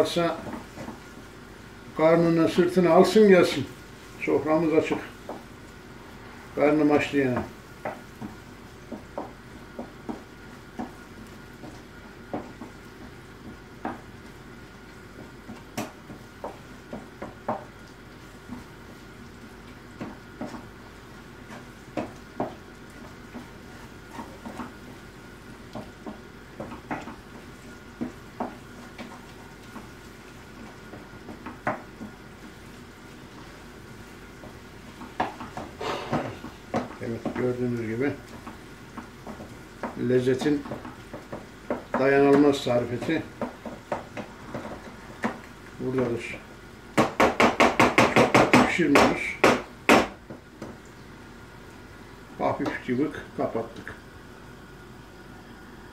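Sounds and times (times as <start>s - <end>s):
food sizzling: 0.0s - 55.9s
wooden spoon scraping frying pan: 19.8s - 46.3s.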